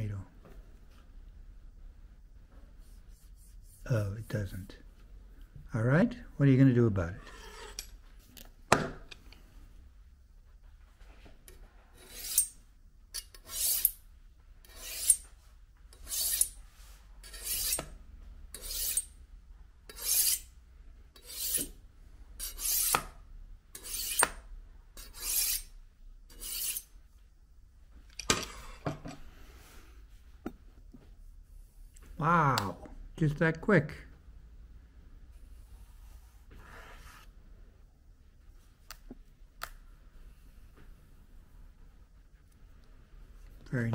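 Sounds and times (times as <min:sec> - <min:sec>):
knife scraping on honing rod: 0:07.2 - 0:08.0, 0:11.9 - 0:12.6, 0:13.2 - 0:14.0, 0:14.6 - 0:15.3, 0:15.9 - 0:16.6, 0:17.2 - 0:17.9, 0:18.6 - 0:19.1, 0:19.9 - 0:20.5, 0:21.2 - 0:21.7, 0:22.4 - 0:23.0, 0:23.8 - 0:24.4, 0:25.0 - 0:25.7, 0:26.3 - 0:26.9.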